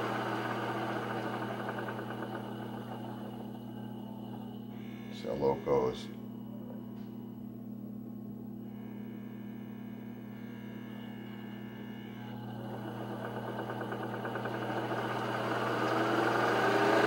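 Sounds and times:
sewing machine motor whirring: 0.0s - 4.4s, 12.2s - 17.0s.

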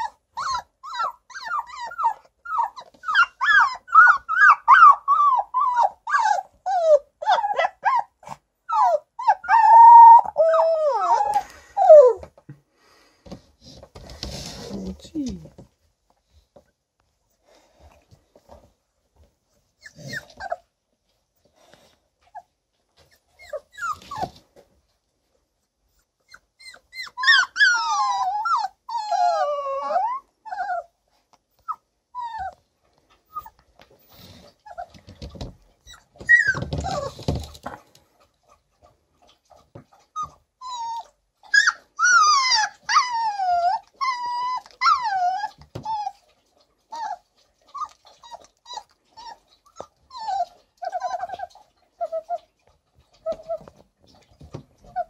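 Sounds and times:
puppies yelping: 0.0s - 12.2s, 26.3s - 30.9s, 35.8s - 37.5s, 39.9s - 46.3s, 46.9s - 54.2s
puppies whining and squealing: 0.0s - 12.4s, 19.7s - 20.8s, 22.2s - 24.4s, 25.9s - 37.6s, 39.4s - 55.0s.

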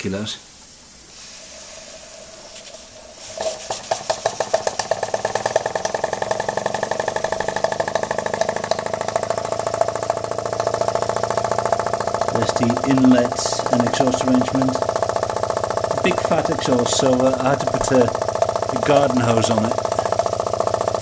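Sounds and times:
faint steam hiss: 0.0s - 7.7s
steam engine exhaust chuffs: 0.8s - 21.0s.

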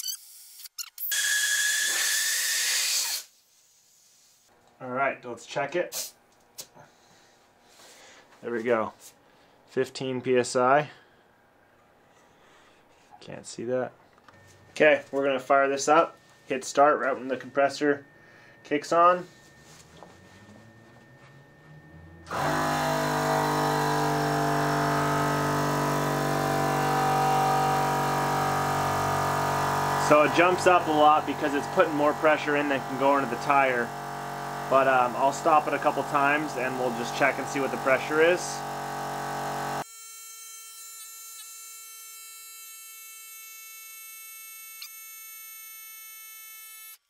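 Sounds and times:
air compressor humming: 14.2s - 39.9s.

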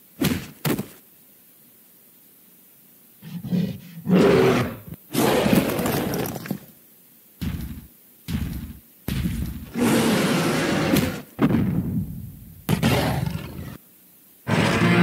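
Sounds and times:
heavy thuds: 7.4s - 9.8s, 11.0s - 13.0s
loud monster roar: 9.7s - 11.2s, 14.5s - 15.0s
cartoon monster growls: 9.7s - 11.3s.

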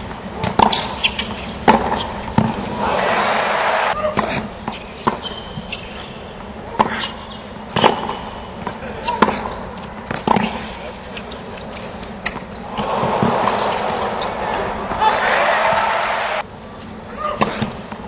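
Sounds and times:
tennis ball bouncing: 0.4s - 2.7s, 6.4s - 10.7s, 12.2s - 15.8s
tennis ball hitting rackets: 0.4s - 2.7s, 7.7s - 10.7s, 12.2s - 15.8s
crowd applause and cheers: 2.8s - 4.0s, 12.7s - 16.4s.

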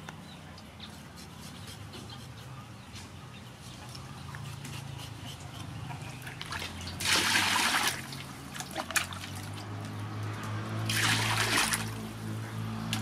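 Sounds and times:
water splashing in metal basin: 6.4s - 9.7s, 10.8s - 12.1s.

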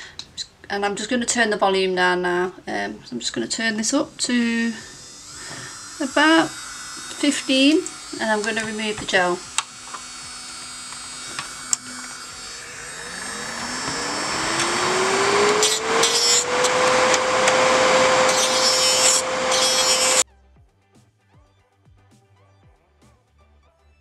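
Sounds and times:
faint background music: 0.0s - 10.6s, 20.2s - 24.0s
electric nail drill whine: 3.6s - 20.2s
bit sanding nail: 3.8s - 20.2s.

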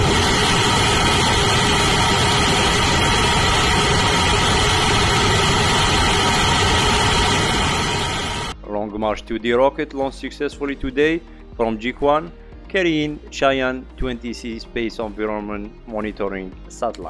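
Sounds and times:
rocket engine exhaust roaring: 0.0s - 8.6s.

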